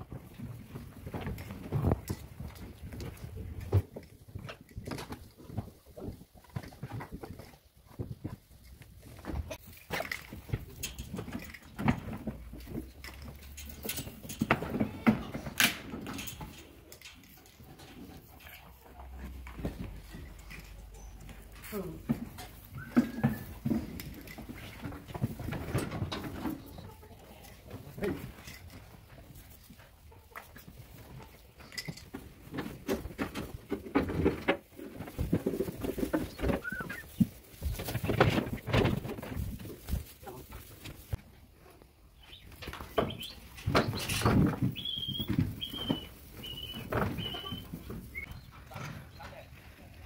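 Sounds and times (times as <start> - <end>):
sheep hooves knocking against pen: 0.0 - 26.8, 42.5 - 48.9
sheep shuffling on straw: 34.7 - 48.4.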